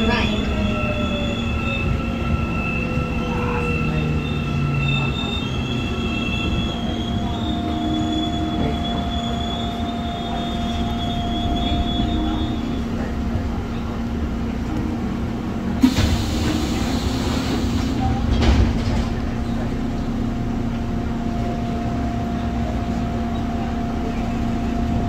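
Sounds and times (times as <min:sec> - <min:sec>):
subway car equipment hum: 0:00.0 - 0:25.0
air hissing: 0:15.8 - 0:18.1.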